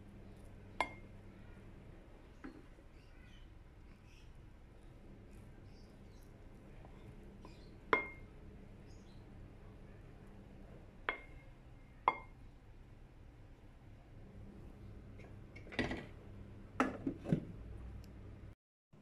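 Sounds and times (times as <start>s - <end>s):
plastic spatula tapping ceramic plate: 11.0s - 11.3s.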